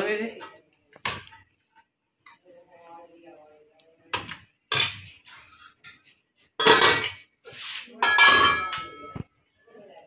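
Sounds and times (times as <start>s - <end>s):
metal dishes and utensils clattering: 4.2s - 9.2s.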